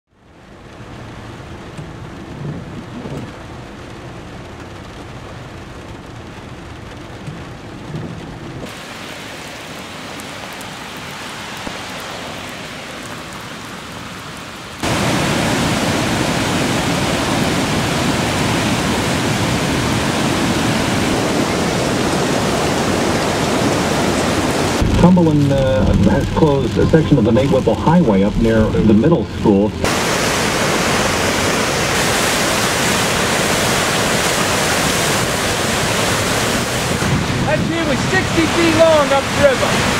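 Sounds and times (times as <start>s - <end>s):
steady rain: 0.1s - 39.9s
rushing floodwater river: 6.2s - 39.9s.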